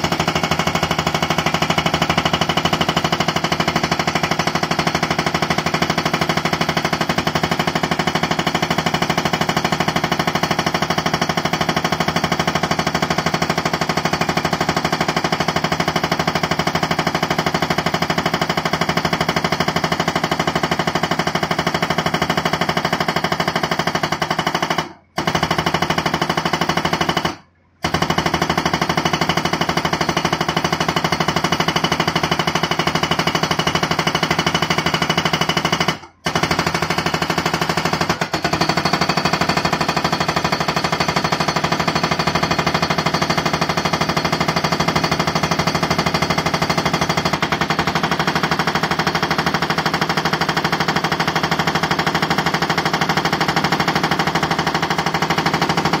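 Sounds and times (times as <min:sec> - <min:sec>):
hydraulic breaker hammering rock: 0:00.0 - 0:22.8, 0:28.0 - 0:56.0.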